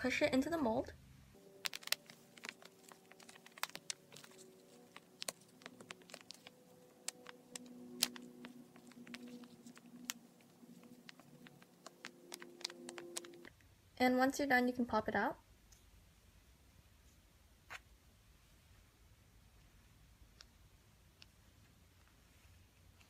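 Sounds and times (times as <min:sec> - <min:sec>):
fingers kneading paste in mold: 0:01.6 - 0:13.5.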